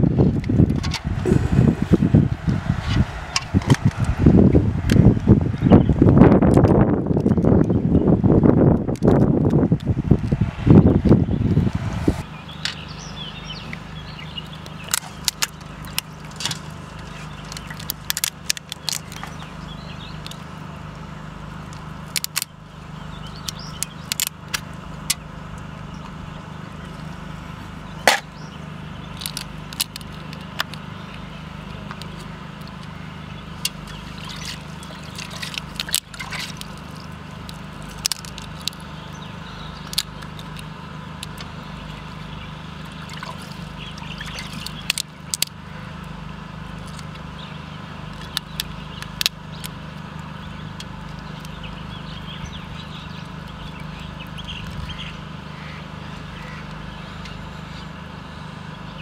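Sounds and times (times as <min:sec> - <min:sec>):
steady low hum: 0:00.0 - 0:59.0
lobster shell cracking: 0:17.5 - 0:19.3, 0:21.7 - 0:22.5, 0:23.5 - 0:25.2, 0:29.2 - 0:30.8, 0:33.6 - 0:38.8, 0:39.8 - 0:41.5, 0:44.3 - 0:45.6, 0:48.1 - 0:51.6.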